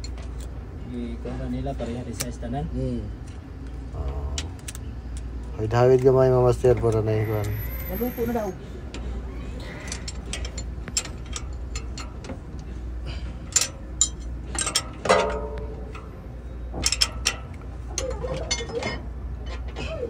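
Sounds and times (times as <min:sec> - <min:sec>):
metallic clicks of hand tools: 0:04.3 - 0:06.2, 0:13.5 - 0:16.1
metal clank: 0:09.8 - 0:20.0.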